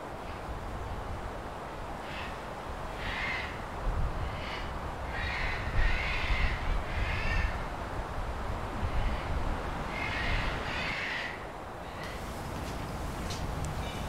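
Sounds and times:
crows cawing: 2.0s - 7.6s, 8.9s - 12.2s.

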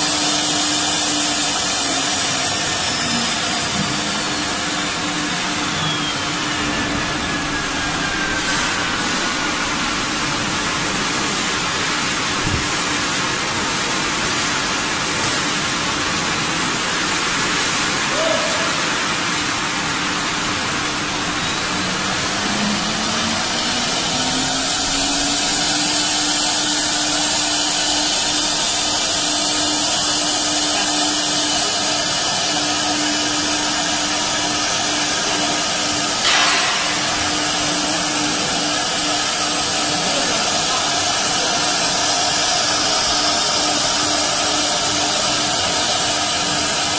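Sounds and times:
humming tone rising in pitch: 21.1s - 26.4s.

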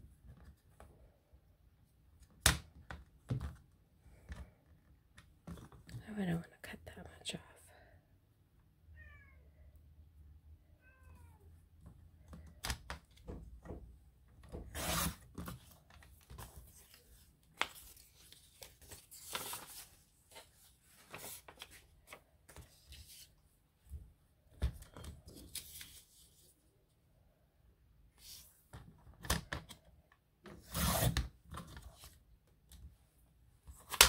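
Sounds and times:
cat meowing: 8.9s - 9.7s, 10.8s - 11.5s
paper rustling: 14.8s - 23.4s, 24.9s - 26.5s.

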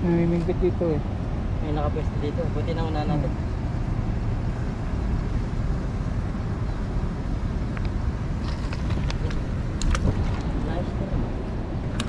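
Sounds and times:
low rumbling outdoor noise: 0.0s - 12.0s.

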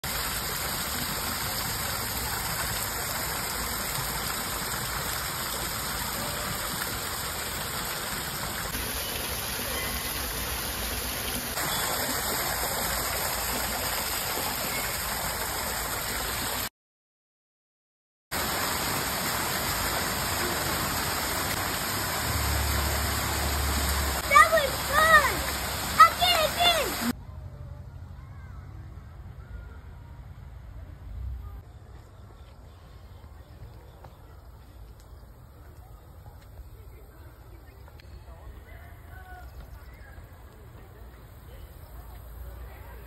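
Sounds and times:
water splashing into fountain basin: 0.0s - 16.7s, 18.3s - 27.2s.

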